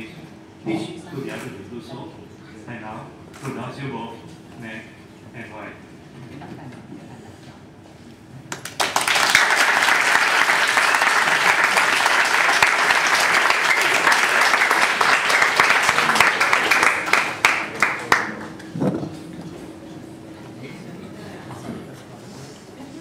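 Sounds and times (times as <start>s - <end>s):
crowd applauding: 8.5s - 18.7s.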